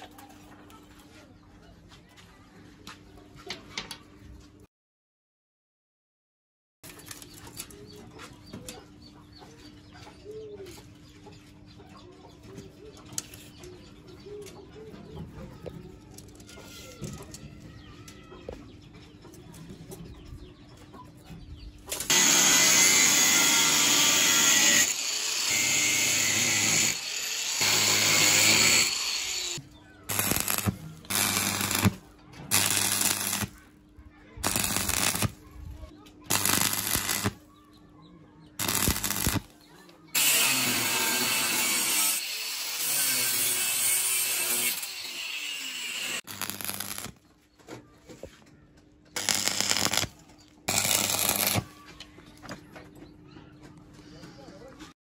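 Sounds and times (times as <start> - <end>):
welding arc crackling and hissing: 22.0 - 33.6, 34.4 - 35.4, 36.3 - 37.4, 38.6 - 39.5, 45.8 - 47.2, 49.2 - 50.1, 50.7 - 51.7.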